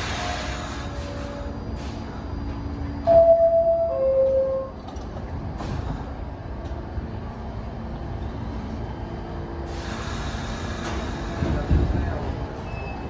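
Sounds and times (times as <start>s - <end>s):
air hissing: 0.0s - 2.2s, 9.7s - 11.6s
train equipment rumble and hum: 0.0s - 13.0s.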